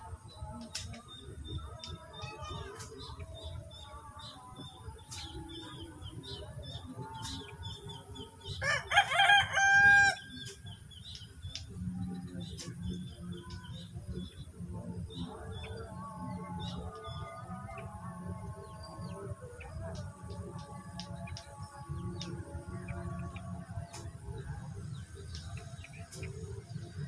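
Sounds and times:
rooster crowing: 0:08.6 - 0:10.3.

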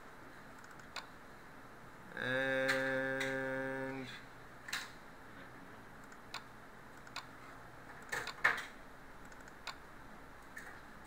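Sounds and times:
faint room hiss: 0:00.0 - 0:11.0
sharp clicks and light knocks: 0:07.9 - 0:09.8.

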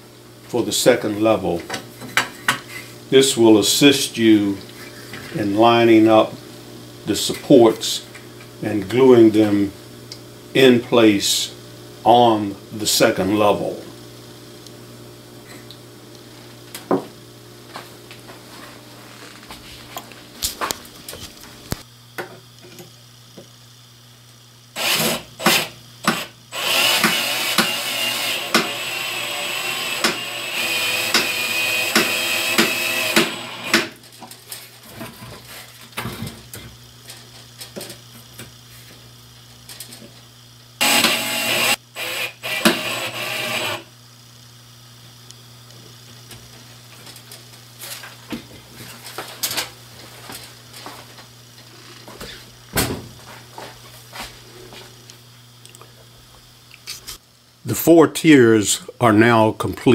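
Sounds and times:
cordless drill driving screws: 0:24.8 - 0:33.9, 0:40.8 - 0:43.8.

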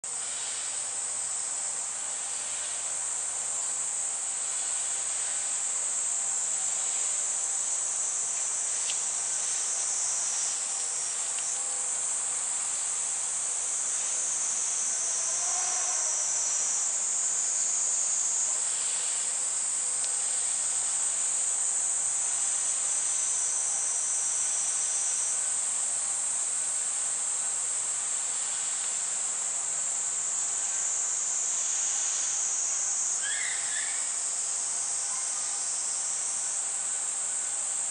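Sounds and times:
insects shrilling: 0:06.8 - 0:19.3, 0:29.7 - 0:36.6.

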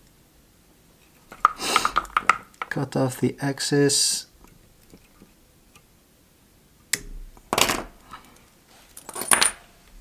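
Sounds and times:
handling noise: 0:01.0 - 0:02.8.

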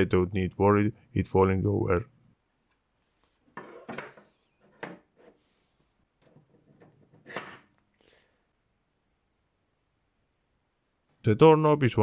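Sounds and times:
plastic knocks and scrapes on desk: 0:03.5 - 0:05.4, 0:06.2 - 0:07.8.

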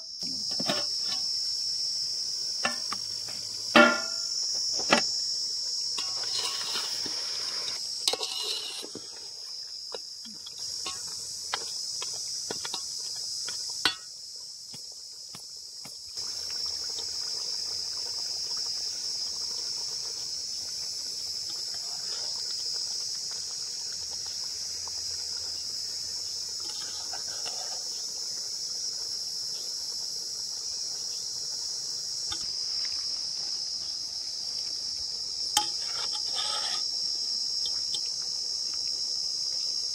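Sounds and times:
crickets chirping: 0:00.0 - 0:39.9
ladle clinking on metal pot: 0:03.8 - 0:04.2.

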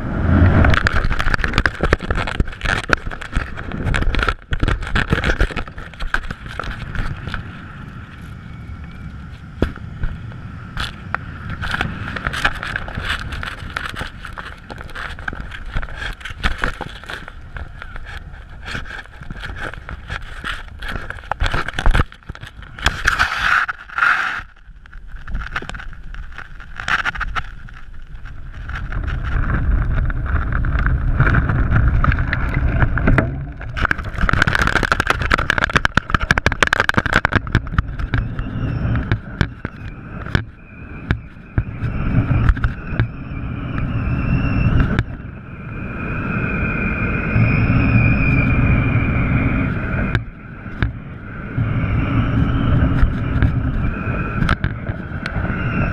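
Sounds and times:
kite fabric flapping and clicking: 0:00.0 - 0:55.9
wind buffeting camera: 0:00.0 - 0:55.9
thin wavering whistle: 0:38.0 - 0:55.9.

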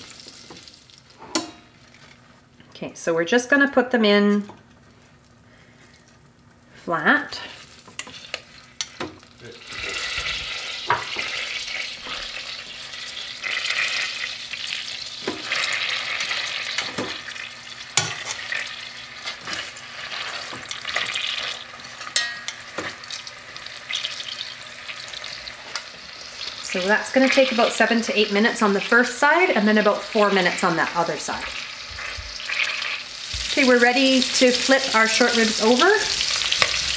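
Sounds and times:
meat sizzling in butter: 0:00.0 - 0:01.1, 0:07.6 - 0:36.9
metal tongs clicking on pot: 0:22.1 - 0:22.6.

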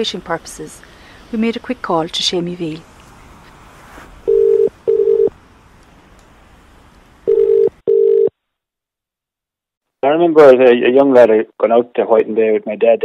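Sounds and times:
telephone ringback tone: 0:04.3 - 0:05.3, 0:07.3 - 0:08.3.

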